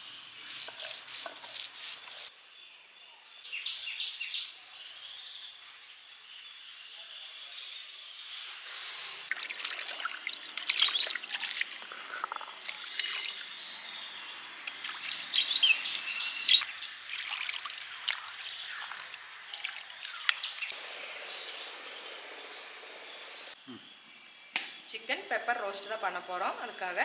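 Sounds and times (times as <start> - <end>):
water splashing on stone: 9.3 - 11.9, 12.6 - 13.5, 14.7 - 20.7.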